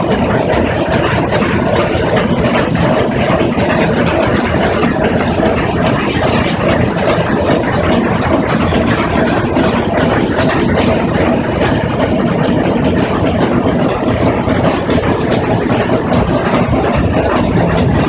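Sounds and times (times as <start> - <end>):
steam engine clattering: 0.0 - 18.0.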